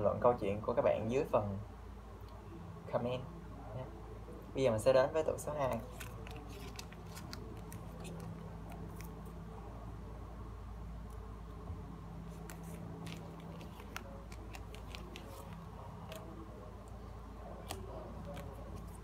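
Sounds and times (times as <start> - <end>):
steady low hum: 0.0 - 19.0
cards clicking together: 5.6 - 9.2, 12.4 - 16.3.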